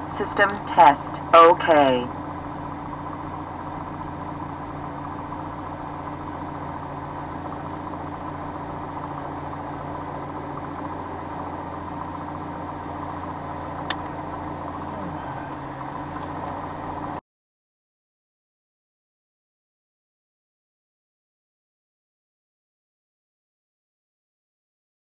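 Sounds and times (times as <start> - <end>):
propeller aircraft engine idling: 0.0 - 17.2.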